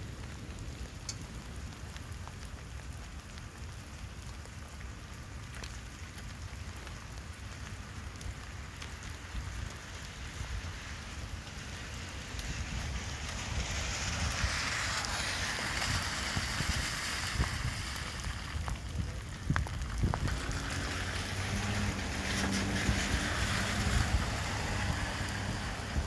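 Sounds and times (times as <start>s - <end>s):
heavy rain falling: 0.0s - 26.0s
wind buffeting microphone: 10.1s - 26.0s
wind gusting: 10.2s - 26.0s.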